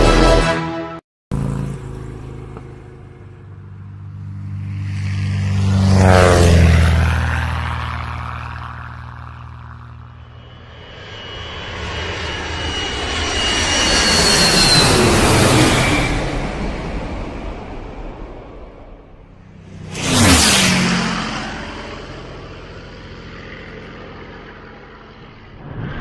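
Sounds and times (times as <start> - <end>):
rushing engine: 0.0 - 26.0
vehicle engine passing by: 1.3 - 10.8, 19.4 - 26.0.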